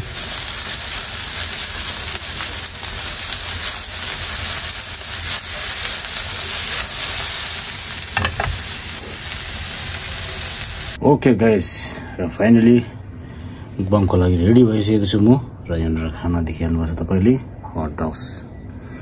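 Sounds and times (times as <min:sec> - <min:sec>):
vegetables sizzling in a pan: 0:00.0 - 0:11.0.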